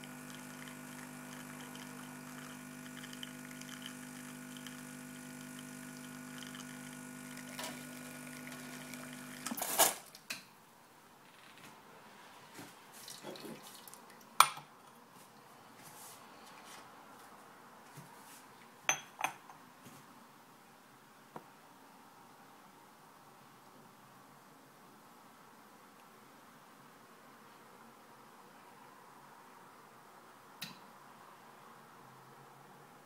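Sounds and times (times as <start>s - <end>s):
espresso machine pump humming: 0.0s - 9.8s
cup clinking on saucer: 18.9s - 19.5s.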